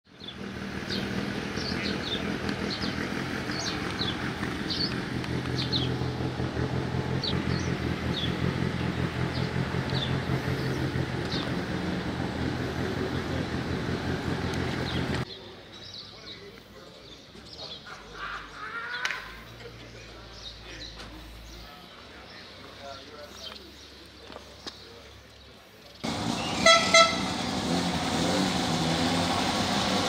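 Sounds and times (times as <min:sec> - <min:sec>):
bird chirps: 0:00.2 - 0:06.0, 0:26.3 - 0:26.8
car engine idling: 0:00.2 - 0:15.3, 0:26.0 - 0:28.8.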